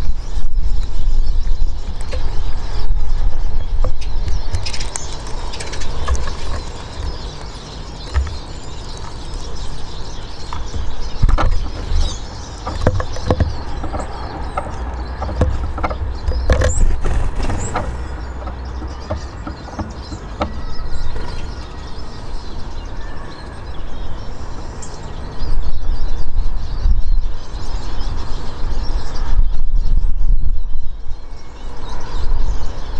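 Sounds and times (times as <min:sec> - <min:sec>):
low outdoor rumble: 0:00.0 - 0:22.9.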